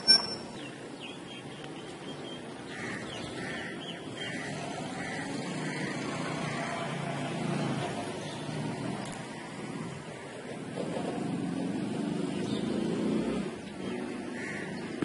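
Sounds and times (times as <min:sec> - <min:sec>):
faint high chirps: 0:00.0 - 0:00.8
outdoor background rumble: 0:00.0 - 0:15.0.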